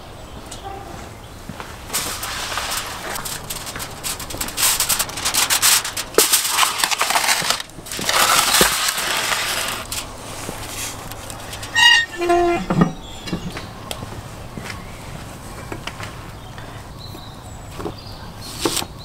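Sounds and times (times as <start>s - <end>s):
metal tray scraping: 2.0s - 13.5s
metal door squeal: 11.4s - 13.6s.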